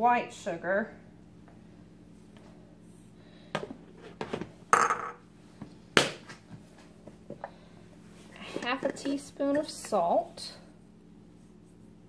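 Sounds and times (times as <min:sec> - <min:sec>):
measuring cup set on countertop: 0:04.0 - 0:05.2.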